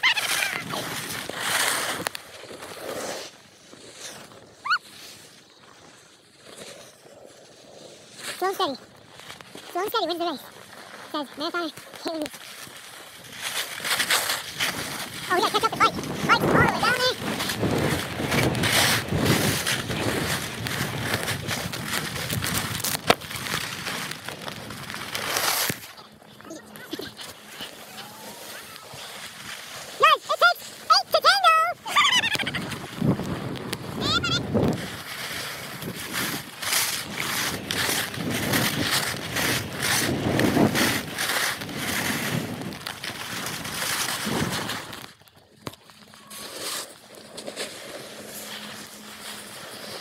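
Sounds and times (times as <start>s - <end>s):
skis scraping over snow: 0.0s - 50.0s
wind buffeting microphone: 14.5s - 25.0s, 31.8s - 44.9s.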